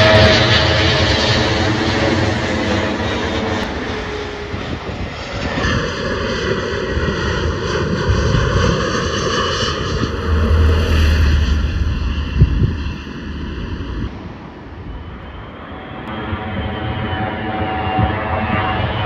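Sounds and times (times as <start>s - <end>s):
jet airliner engines passing overhead: 0.0s - 19.0s
low rumble: 9.0s - 15.5s.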